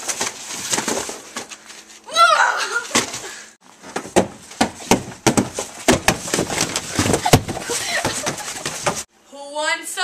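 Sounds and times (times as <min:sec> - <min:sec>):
clothing rustling: 0:02.8 - 0:09.1
camera knocking and thumping: 0:04.0 - 0:09.0.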